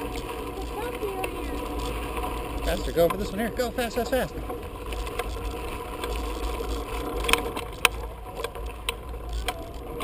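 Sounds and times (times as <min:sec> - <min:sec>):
bicycle clicks and rattles: 0:00.0 - 0:10.0.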